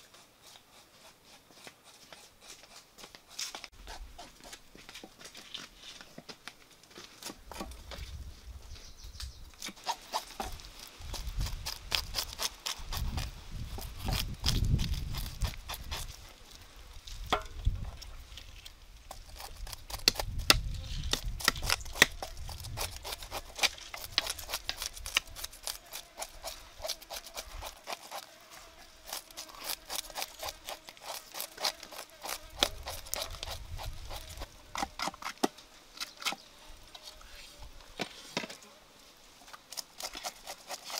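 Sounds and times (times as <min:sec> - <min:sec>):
knife scraping fish scales: 0:09.6 - 0:16.2, 0:18.5 - 0:28.3, 0:29.0 - 0:35.4, 0:39.7 - 0:40.9.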